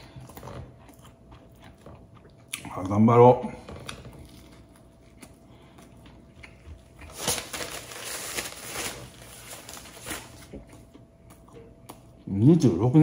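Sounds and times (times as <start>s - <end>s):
chewing bread: 0.0s - 12.6s
wrapper crinkling: 7.1s - 10.6s.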